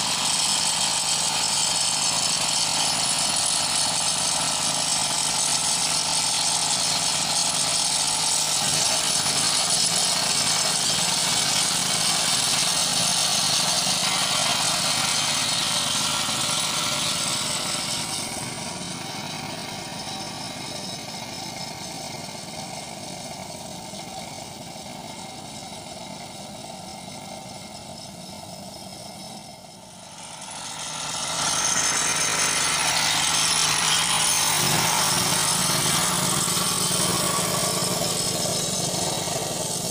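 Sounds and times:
small petrol engine running: 0.0 - 39.9
paint sprayer hissing: 29.8 - 39.9.

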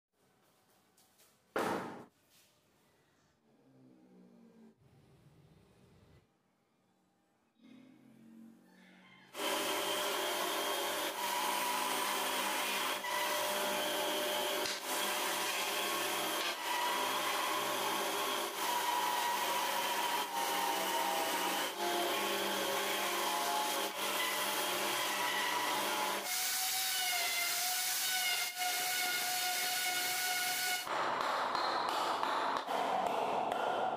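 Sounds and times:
power tool cutting wood: 9.4 - 30.9.

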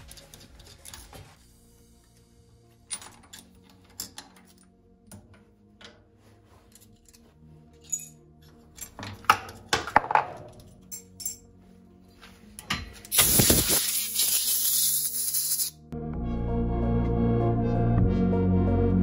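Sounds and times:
metal clinks and clicks: 0.0 - 1.4, 7.8 - 11.4
metal-on-metal clatter: 7.8 - 11.4.

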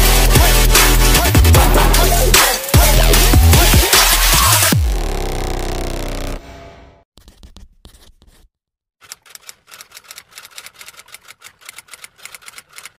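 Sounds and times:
fast sharp clicks: 9.0 - 13.0.

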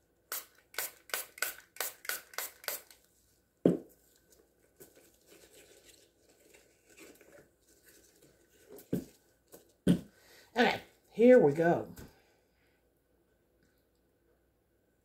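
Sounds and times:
spray bottle spritzes: 0.3 - 3.0.

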